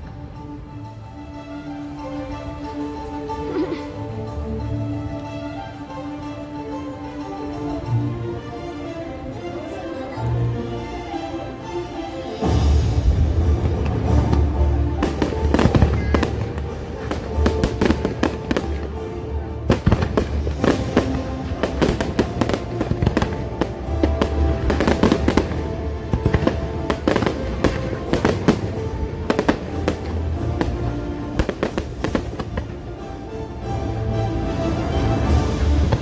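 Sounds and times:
show music: 0:00.0 - 0:36.0
fireworks bangs and crackles: 0:12.4 - 0:32.9, 0:35.2 - 0:36.0.

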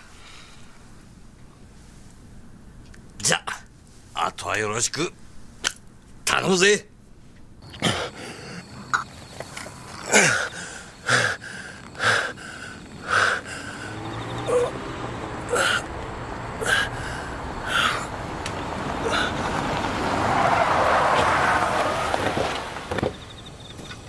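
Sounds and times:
man gasping and groaning in pain: 0:10.0 - 0:14.7, 0:15.5 - 0:15.9, 0:16.6 - 0:18.1, 0:19.0 - 0:19.4.

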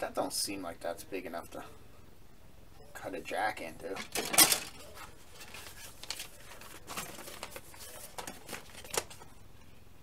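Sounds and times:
paper sheets rustling: 0:04.0 - 0:09.3.

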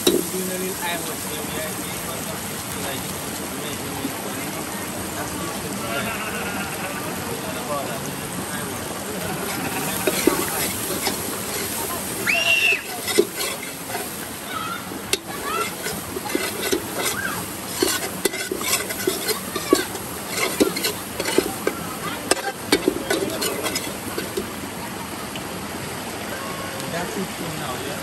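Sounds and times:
metal spoon scraping pot: 0:00.0 - 0:00.4, 0:09.4 - 0:14.4, 0:15.1 - 0:24.5
frying sizzle: 0:00.0 - 0:24.7.

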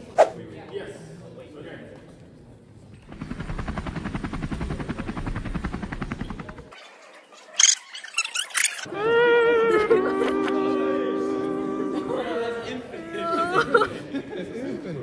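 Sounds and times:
model helicopter rotor whirring: 0:03.0 - 0:06.7.

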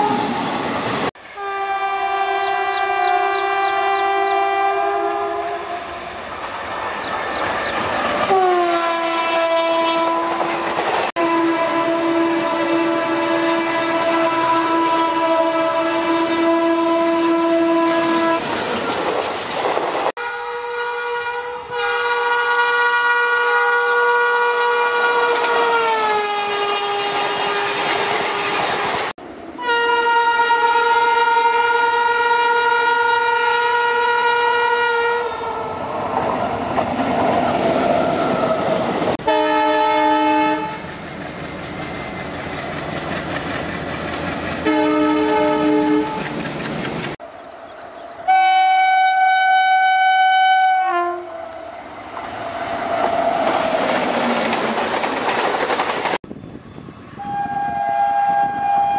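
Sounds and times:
passing train rumble: 0:00.0 - 0:58.9
locomotive horn blasts: 0:01.2 - 0:06.0, 0:08.2 - 0:18.6, 0:20.2 - 0:29.0, 0:29.6 - 0:35.8, 0:39.2 - 0:40.9, 0:44.6 - 0:46.3, 0:48.3 - 0:51.6, 0:57.2 - 0:58.9
train wheel clatter: 0:18.4 - 0:20.1, 0:27.1 - 0:29.1, 0:40.8 - 0:47.2, 0:52.2 - 0:56.3.

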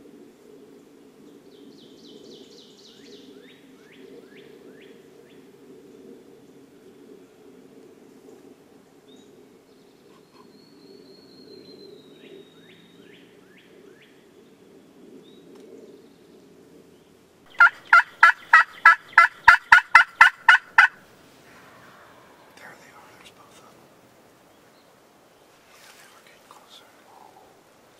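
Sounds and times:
faint small-bird chirps: 0:10.1 - 0:12.9
turkey yelps: 0:17.6 - 0:21.0.

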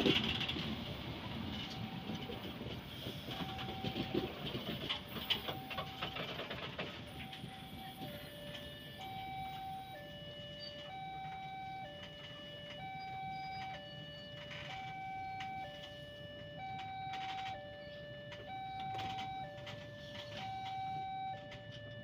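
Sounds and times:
train coaches rumbling past: 0:00.0 - 0:11.4
level crossing alarm tones: 0:01.2 - 0:22.0.

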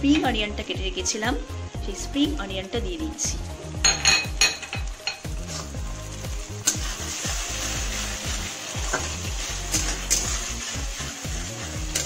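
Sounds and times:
onions sizzling in a pan: 0:00.0 - 0:12.0
metal spatula scraping a pan: 0:04.5 - 0:05.8, 0:06.5 - 0:12.0.

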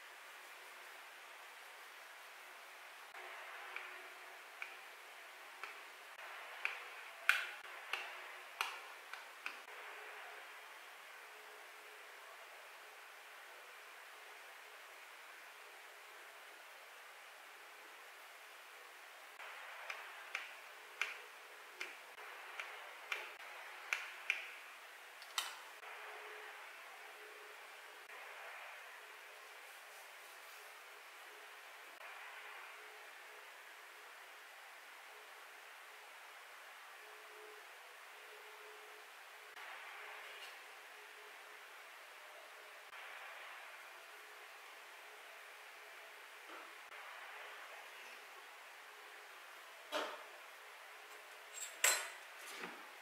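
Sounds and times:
faint steady hiss: 0:00.0 - 0:53.0.

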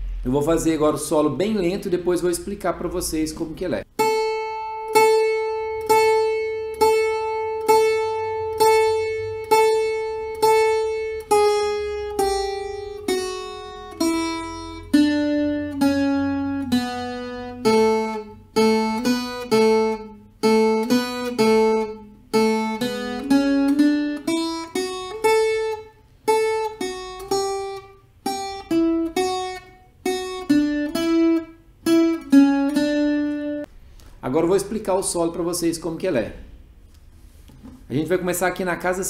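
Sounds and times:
ten-string guitar solo: 0:03.9 - 0:33.7.

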